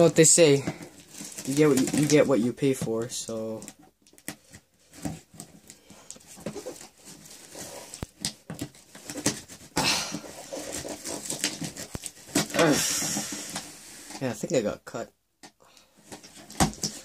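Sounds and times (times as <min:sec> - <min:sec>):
tape tearing rasp: 0:06.4 - 0:13.7.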